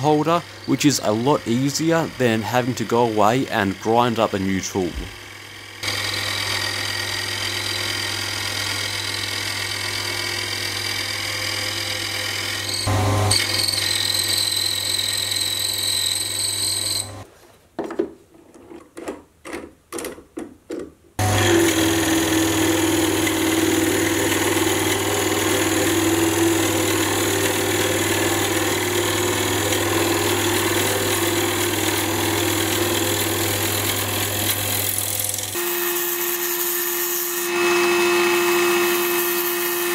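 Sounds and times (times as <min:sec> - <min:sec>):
tool cutting wood: 0:00.0 - 0:17.3, 0:21.2 - 0:39.9
lathe motor humming: 0:05.2 - 0:17.2, 0:21.2 - 0:36.0, 0:36.7 - 0:39.9.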